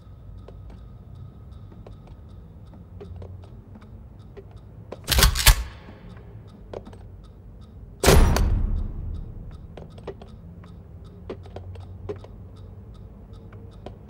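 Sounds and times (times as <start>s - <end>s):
small clicks: 4.4s - 7.7s
loud double bang: 8.0s - 9.5s
low steady hum: 8.0s - 10.1s.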